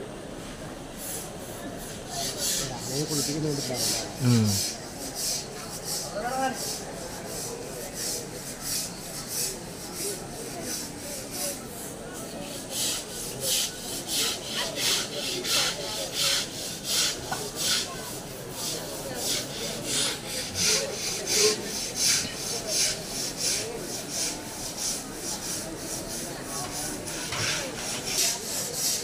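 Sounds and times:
scrubbers rasping on wet hide: 12.8 - 29.0.

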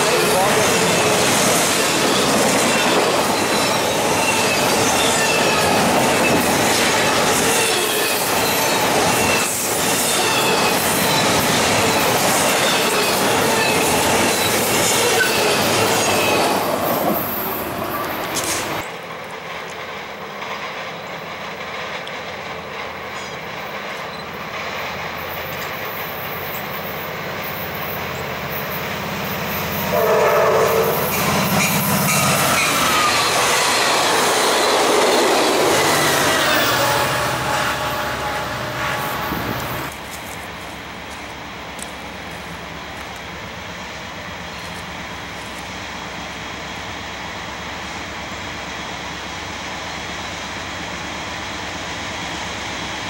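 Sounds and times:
train coaches rushing by: 0.0 - 53.0
train horn: 29.9 - 31.2, 36.2 - 39.9.

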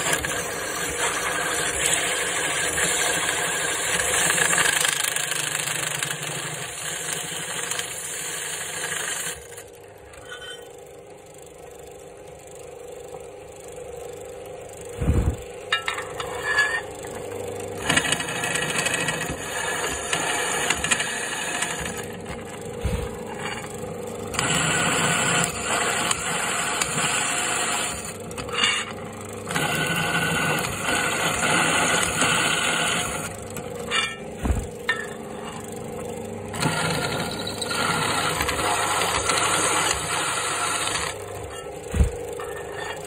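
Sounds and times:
drill bit cutting metal: 0.0 - 10.7, 17.8 - 22.2, 24.3 - 34.2, 36.5 - 41.7, 42.4 - 43.0
drill press motor running: 0.0 - 43.0.

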